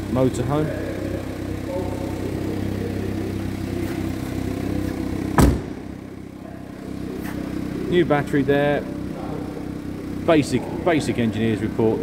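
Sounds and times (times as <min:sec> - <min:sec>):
car engine idling: 0:00.0 - 0:12.0
car door shutting thud: 0:05.2 - 0:05.9.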